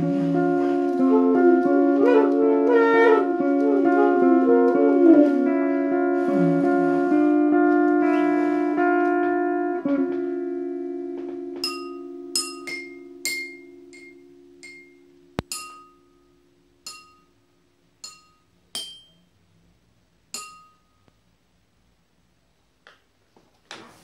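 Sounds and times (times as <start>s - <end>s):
electric guitar chord ringing: 0.0s - 17.7s
glasses and cups tapped: 11.6s - 16.0s, 16.9s - 17.3s, 18.0s - 19.2s, 20.4s - 20.9s.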